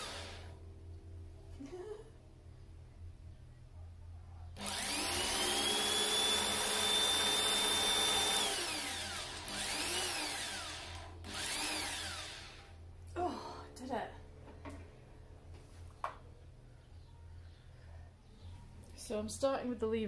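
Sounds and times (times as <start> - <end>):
cordless drill whining: 0.0 - 0.5, 4.6 - 12.7.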